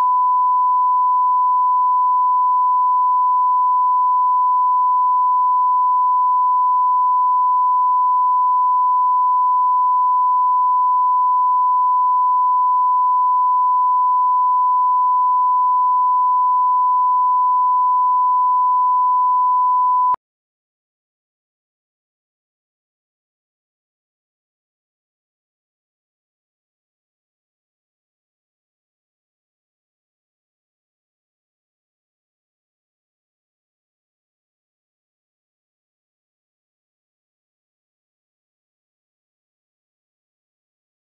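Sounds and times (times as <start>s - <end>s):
steady reference tone beep: 0.0s - 20.2s.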